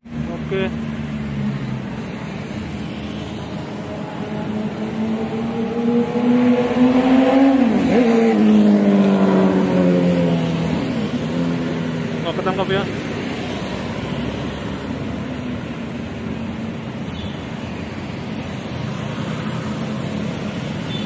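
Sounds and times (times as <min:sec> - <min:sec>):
vehicle passing by: 0:00.5 - 0:15.4.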